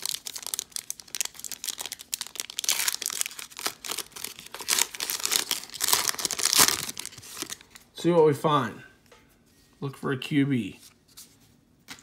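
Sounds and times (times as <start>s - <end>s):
plastic wrapper crinkling and tearing: 0.0s - 7.9s.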